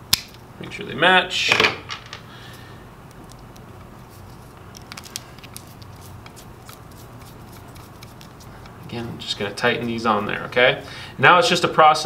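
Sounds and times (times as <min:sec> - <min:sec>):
steady low hum: 0:00.0 - 0:12.0
wires clicking and rustling: 0:03.0 - 0:09.0.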